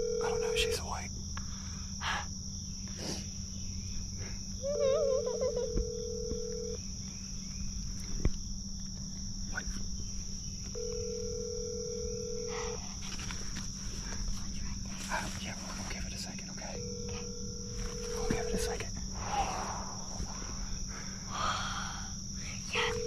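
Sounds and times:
telephone ringback tone: 0:00.0 - 0:00.8, 0:04.7 - 0:06.8, 0:10.8 - 0:12.7, 0:16.8 - 0:18.7
high insect drone: 0:00.0 - 0:23.0.

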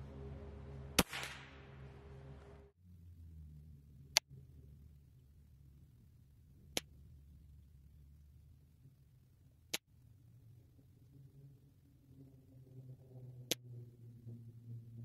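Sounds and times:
air rifle cracks: 0:01.0 - 0:01.6.

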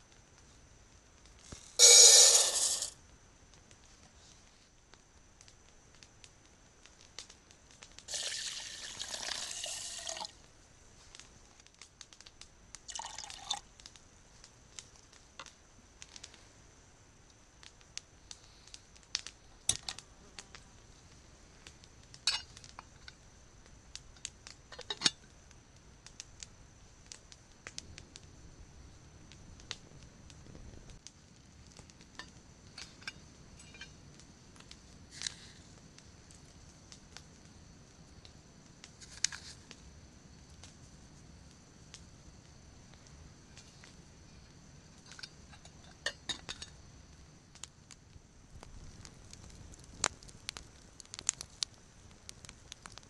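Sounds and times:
metal lid clinking on pot: 0:01.8 - 0:02.9
rice pouring into pot: 0:01.8 - 0:03.0, 0:08.1 - 0:10.3, 0:12.9 - 0:13.6
small clicks and drips: 0:11.1 - 0:16.4, 0:48.6 - 0:53.0.

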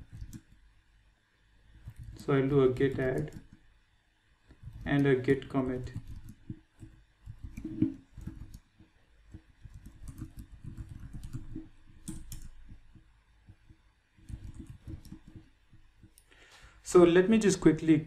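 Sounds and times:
typing on computer keyboard: 0:00.0 - 0:00.6, 0:01.8 - 0:03.6, 0:04.5 - 0:16.3.

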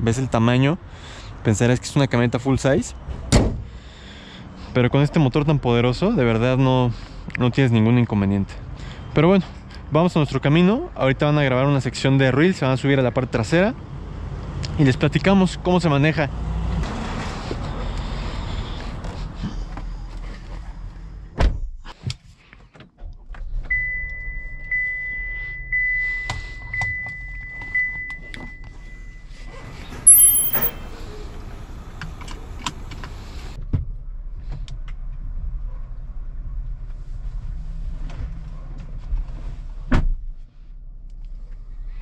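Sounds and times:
high electronic tone: 0:30.1 - 0:30.9.

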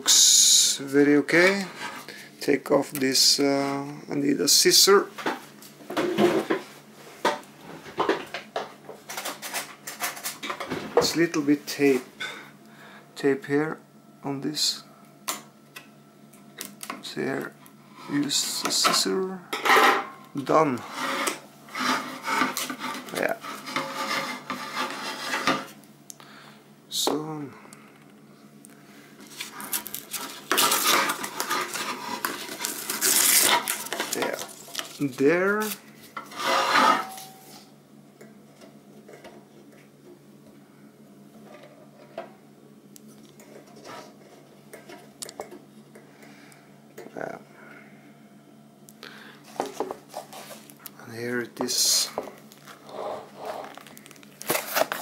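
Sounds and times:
rubbing and scraping: 0:20.8 - 0:25.8, 0:29.3 - 0:37.6, 0:52.8 - 0:53.8.

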